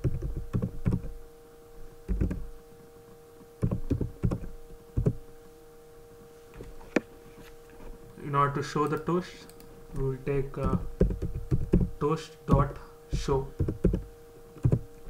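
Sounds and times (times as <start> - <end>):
keyboard typing: 0.0 - 1.1, 2.1 - 2.4, 3.6 - 5.2, 8.8 - 14.9
electrical hum: 0.0 - 15.0.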